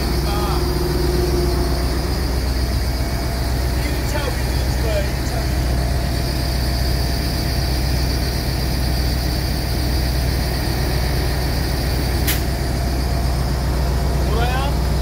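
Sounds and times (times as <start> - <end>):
diesel engine idling: 0.0 - 15.0
sharp click: 12.2 - 12.5.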